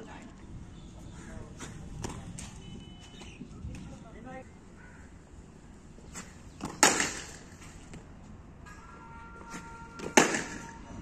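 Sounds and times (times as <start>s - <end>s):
cricket bat striking ball: 6.6s - 7.5s, 10.0s - 10.7s.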